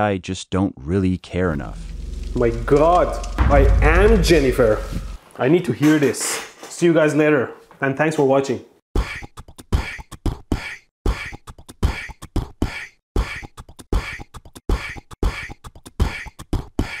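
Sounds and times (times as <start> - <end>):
light clicky percussion hits: 2.2 - 5.2
low kick drum: 2.3 - 5.2.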